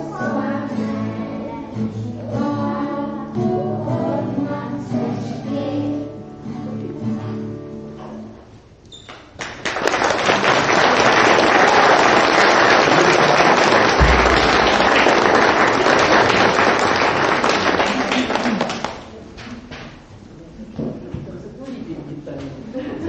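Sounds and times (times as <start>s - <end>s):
audience applauding: 9.4s - 19.1s.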